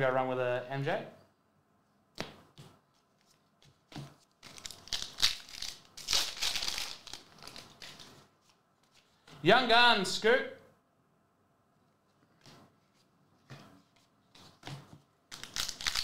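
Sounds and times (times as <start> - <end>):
foil wrapper crinkling and tearing: 4.4 - 8.1, 15.3 - 16.0.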